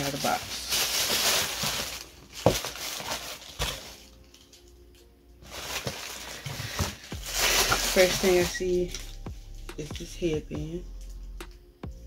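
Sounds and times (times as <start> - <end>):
packaging rustling: 0.0 - 9.2.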